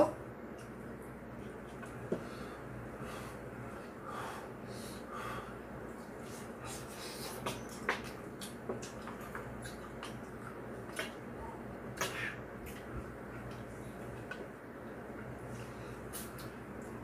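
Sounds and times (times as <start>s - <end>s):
chewing and smacking: 5.9s - 17.0s.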